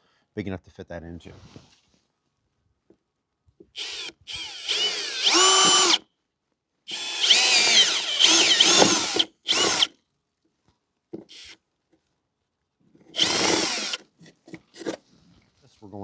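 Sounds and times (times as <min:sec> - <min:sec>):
cordless drill motor whine: 0:03.8 - 0:06.0, 0:06.9 - 0:09.9, 0:11.3 - 0:11.6, 0:13.2 - 0:14.0.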